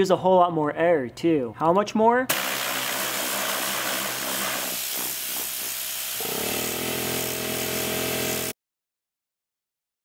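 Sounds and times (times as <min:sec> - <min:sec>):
air gun hissing: 0:02.3 - 0:08.6
compressor motor humming: 0:05.1 - 0:08.5.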